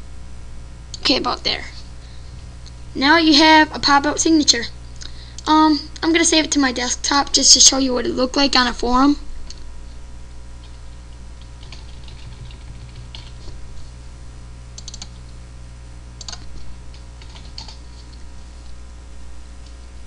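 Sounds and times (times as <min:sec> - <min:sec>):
steady low hum: 0:00.0 - 0:20.0
keyboard keys clicking: 0:11.4 - 0:13.4, 0:14.8 - 0:15.1, 0:16.2 - 0:17.8.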